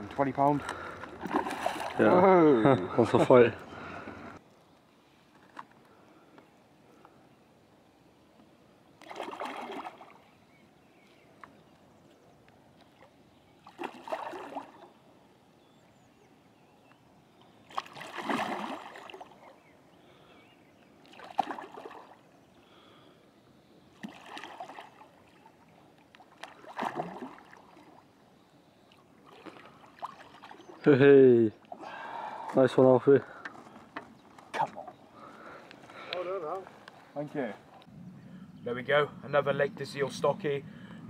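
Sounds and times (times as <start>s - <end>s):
fish splashing at water surface: 9.0s - 10.2s, 13.6s - 14.8s, 17.7s - 19.4s, 21.1s - 22.2s, 24.0s - 25.4s, 26.3s - 28.0s.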